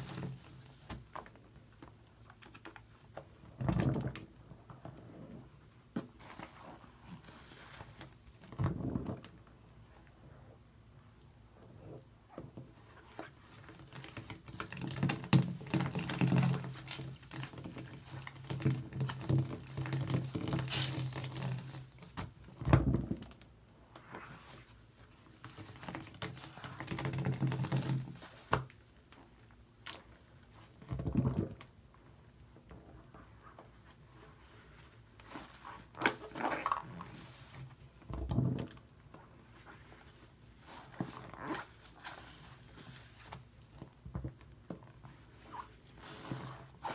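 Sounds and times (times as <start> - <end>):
sponge squelching in foam: 34.2 - 37.9, 45.4 - 46.9.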